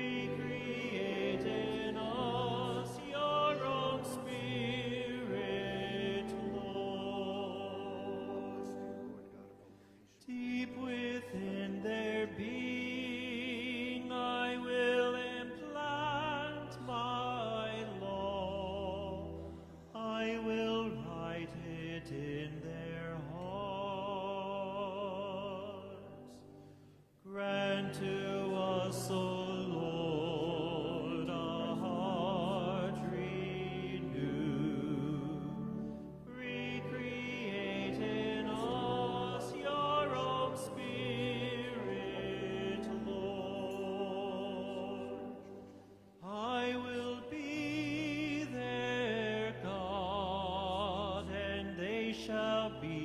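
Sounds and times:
person singing a hymn with vibrato: 0:00.0 - 0:53.0
sustained organ chords: 0:00.0 - 0:53.0.

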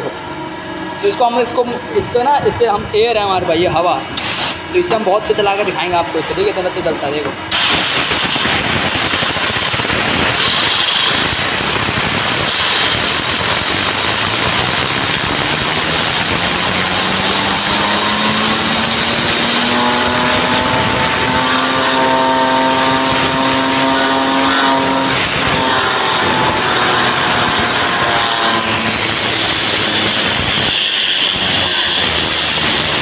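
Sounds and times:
spinning disc hum rising in pitch: 0:00.0 - 0:33.0
compressed air hissing: 0:04.1 - 0:04.7, 0:07.5 - 0:33.0.

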